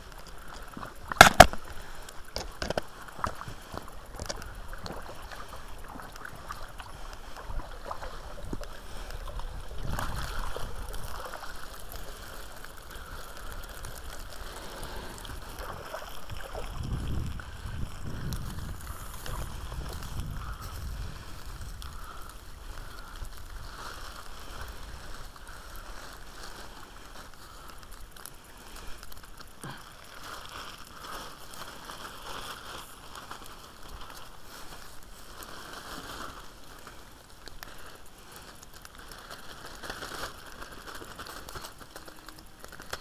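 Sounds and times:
small clicks and crackles: 0:00.0 - 0:43.0
plastic bag crinkling: 0:00.3 - 0:43.0.

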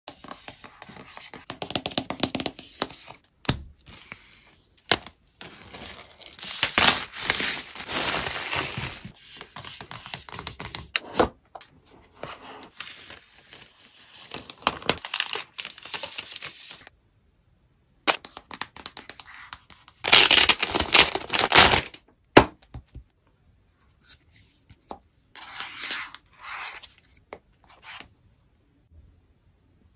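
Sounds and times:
paper tearing and crinkling: 0:20.1 - 0:21.9.

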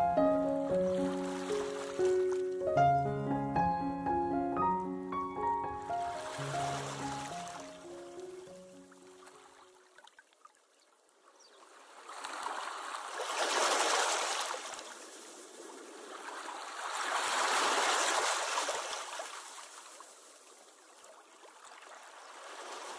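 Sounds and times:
sea waves washing in: 0:00.3 - 0:02.6, 0:05.8 - 0:09.8, 0:11.7 - 0:20.8, 0:21.8 - 0:22.9.

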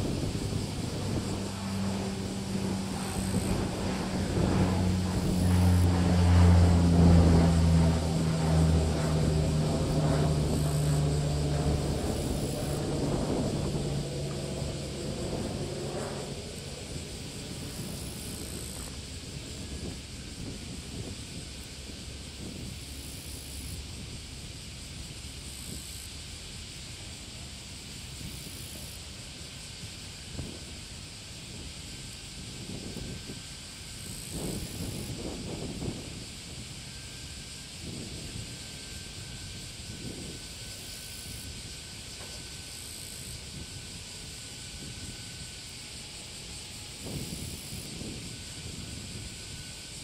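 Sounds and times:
wind buffeting microphone: 0:00.0 - 0:22.9, 0:46.9 - 0:49.7
jet engines droning: 0:00.0 - 0:50.0.

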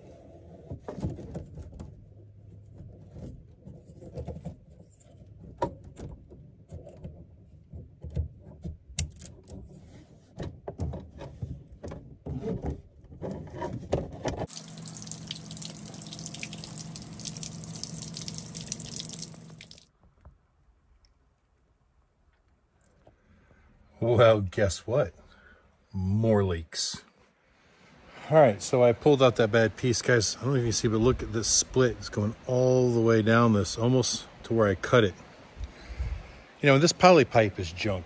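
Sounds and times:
low steady hum: 0:14.4 - 0:23.2
water hissing from a leak: 0:14.5 - 0:19.8.

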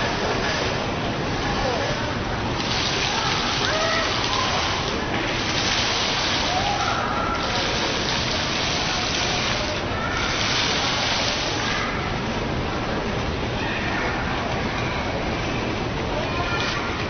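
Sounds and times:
waterfall splashing into basin: 0:02.4 - 0:12.0.

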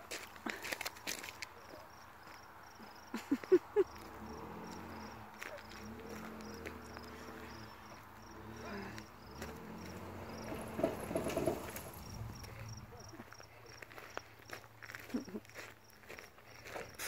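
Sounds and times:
insects chirping: 0:00.0 - 0:17.0
truck engine climbing: 0:03.2 - 0:16.3.

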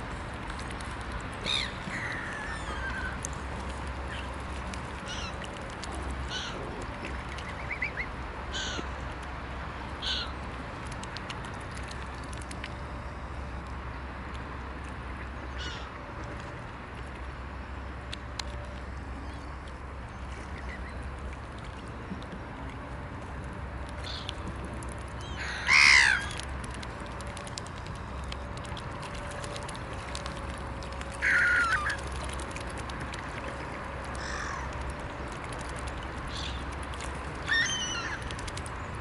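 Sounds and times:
steady low rumble: 0:00.0 - 0:39.0
swan bills clicking and splashing: 0:00.2 - 0:08.1, 0:10.2 - 0:12.8, 0:19.6 - 0:39.0
high waterbird calls: 0:01.4 - 0:09.0, 0:10.0 - 0:10.4, 0:15.0 - 0:16.0, 0:19.1 - 0:21.4, 0:23.9 - 0:24.5, 0:25.1 - 0:26.5, 0:30.9 - 0:39.0.

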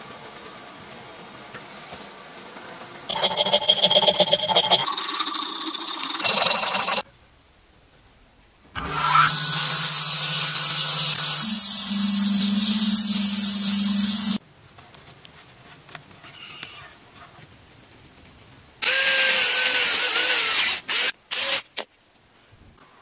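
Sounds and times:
belt sander running: 0:08.8 - 0:14.4.

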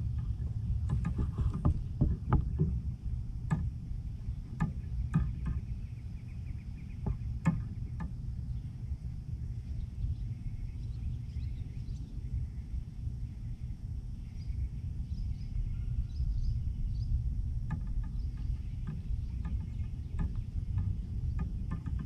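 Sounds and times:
gear knocking on boat: 0:00.0 - 0:05.8, 0:17.6 - 0:22.0
boat engine low rumble: 0:00.0 - 0:22.0.

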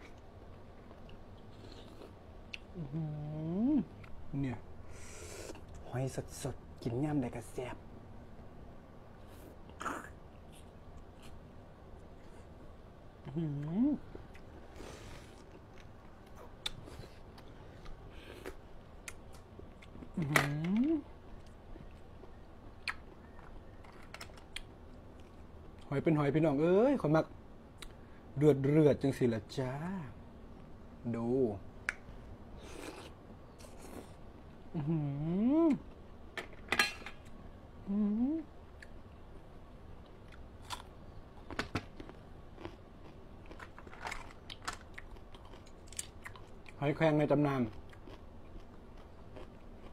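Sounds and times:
soft chewing with small clicks: 0:00.0 - 0:02.8, 0:04.0 - 0:04.2, 0:13.2 - 0:20.2, 0:21.2 - 0:25.9, 0:27.7 - 0:28.0, 0:38.7 - 0:39.1, 0:39.8 - 0:46.9, 0:47.6 - 0:49.9
closed-mouth mmm: 0:09.7 - 0:11.3
crunchy biting and chewing: 0:40.3 - 0:46.8.

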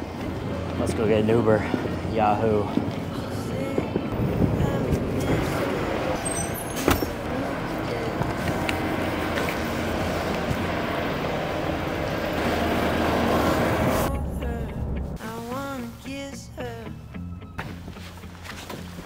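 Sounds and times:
idling traffic noise: 0:00.0 - 0:15.2
low hum: 0:07.1 - 0:17.6.

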